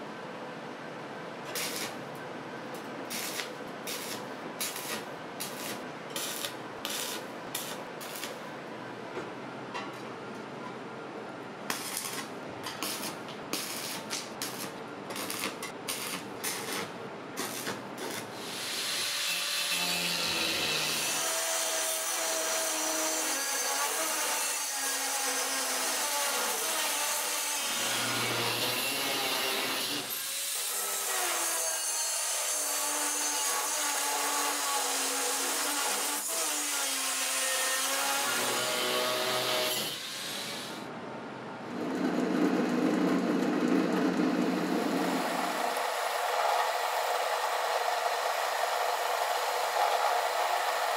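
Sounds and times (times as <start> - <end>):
welding arc crackling: 1.5 - 2.1, 3.1 - 8.4, 11.7 - 19.0.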